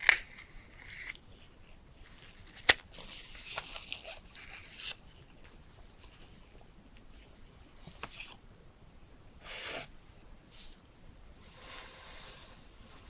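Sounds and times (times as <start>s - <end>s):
paper and cardboard rustling: 0.0s - 8.4s.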